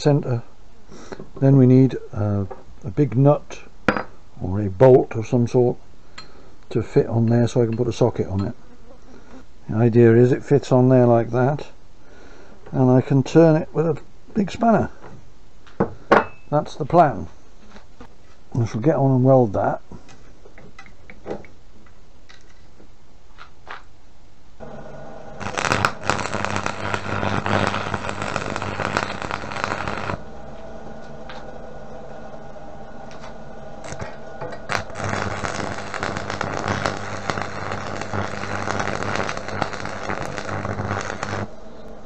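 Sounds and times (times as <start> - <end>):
crackling welding arc: 24.6 - 30.4, 33.1 - 41.6
welder hum: 24.6 - 42.0.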